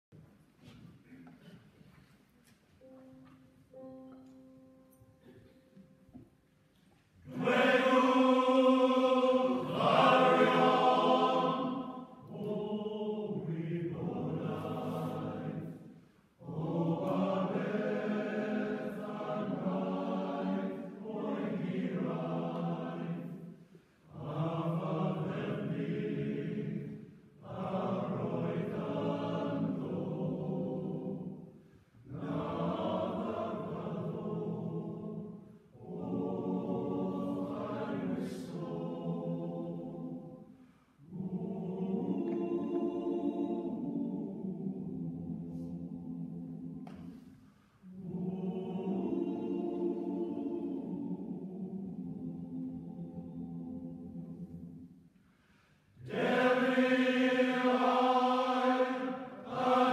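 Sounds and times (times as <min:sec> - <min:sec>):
faint steady notes: 0:02.4 - 0:46.8
male choir singing: 0:07.2 - 0:23.5, 0:24.1 - 0:47.0, 0:47.8 - 0:54.7, 0:56.0 - 0:59.9.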